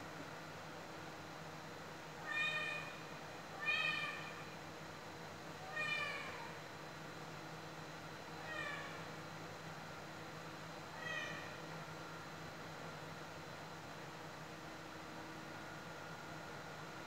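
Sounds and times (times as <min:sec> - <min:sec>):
cat meowing: 0:02.2 - 0:02.9, 0:05.7 - 0:06.4, 0:08.4 - 0:09.0, 0:11.0 - 0:11.5.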